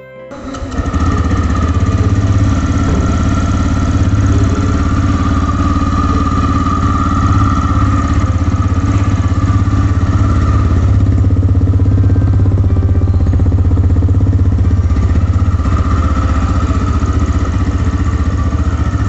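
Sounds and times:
motorcycle engine idling: 0.3 - 19.0.

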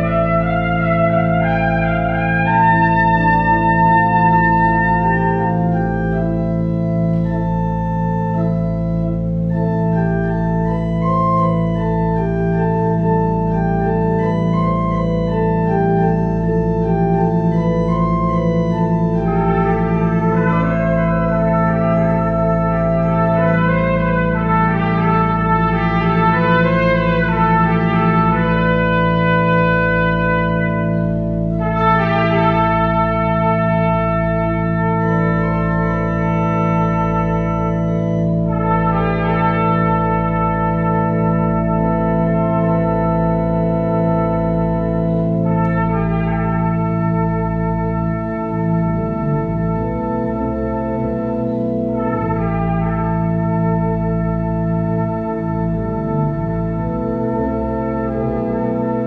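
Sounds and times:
organ chords: 0.0 - 59.0
trumpet melody: 0.0 - 59.0.

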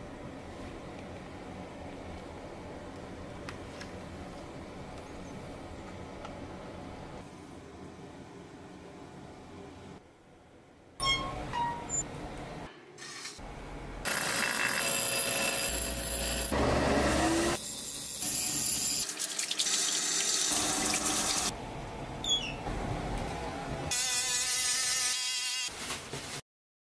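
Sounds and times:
short workshop noises: 14.0 - 19.2
tap water running into sink: 19.1 - 21.5.

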